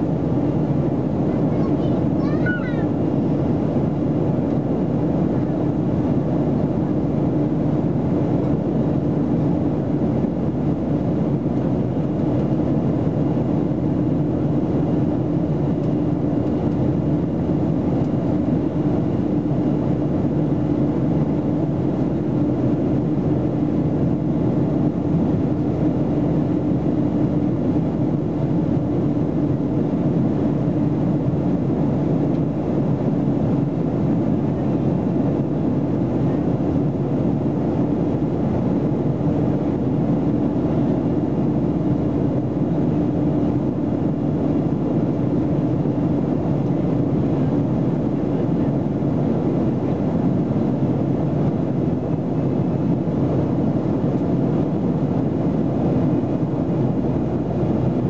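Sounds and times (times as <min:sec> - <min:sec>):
jet engine and airflow rush: 0:00.0 - 0:58.0
low cabin hum: 0:00.0 - 0:58.0.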